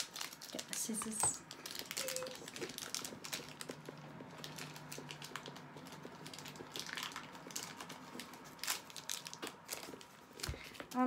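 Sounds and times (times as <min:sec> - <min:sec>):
packaging crinkling and rustling: 0:00.0 - 0:11.0.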